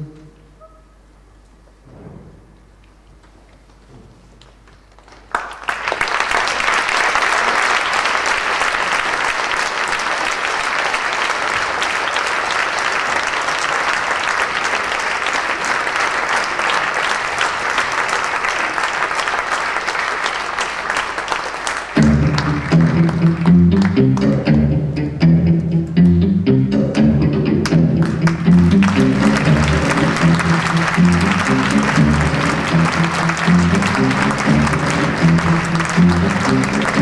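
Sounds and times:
audience applause: 4.8s - 24.4s, 28.0s - 37.0s
music: 22.0s - 37.0s.

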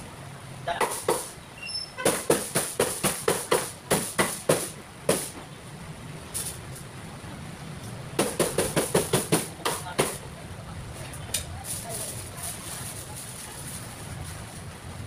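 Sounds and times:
cleaver chopping on board: 0.8s - 1.3s, 2.1s - 5.3s.

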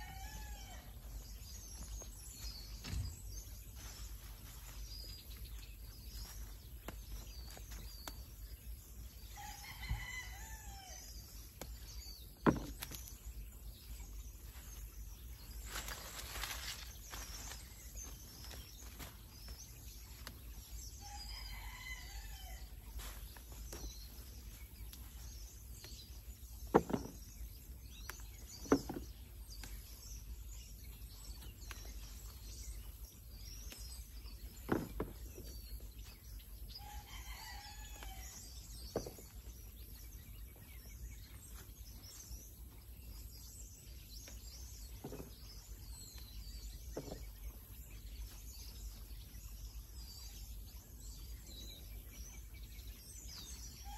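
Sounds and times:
rooster crowing: 0.0s - 1.0s, 9.4s - 11.0s, 21.0s - 22.7s.

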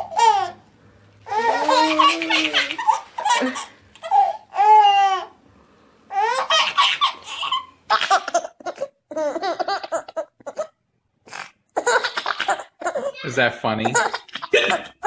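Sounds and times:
another baby laughing: 0.0s - 0.6s, 1.3s - 5.4s, 6.1s - 10.8s, 11.8s - 13.2s, 13.8s - 15.0s
baby laughing and squealing: 0.0s - 0.6s, 1.3s - 5.3s, 6.1s - 10.7s, 11.8s - 14.8s.

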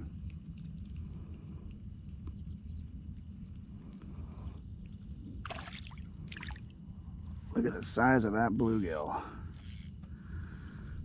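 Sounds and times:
fishing reel clicks: 8.6s - 10.0s
fishing reel cranking rumble: 8.6s - 10.4s.

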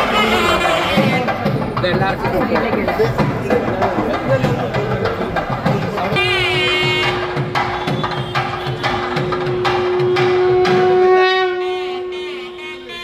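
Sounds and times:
rapid drumming: 0.0s - 11.5s
wind instrument long note: 9.9s - 13.0s.

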